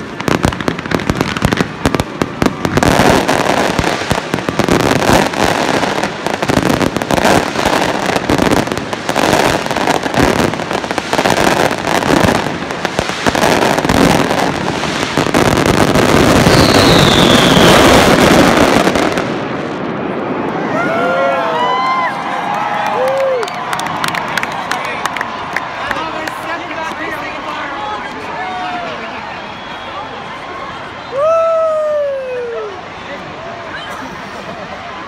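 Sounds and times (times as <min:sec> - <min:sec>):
fireworks bangs and crackling: 0:00.0 - 0:22.0
falling firework whistle: 0:13.3 - 0:19.2.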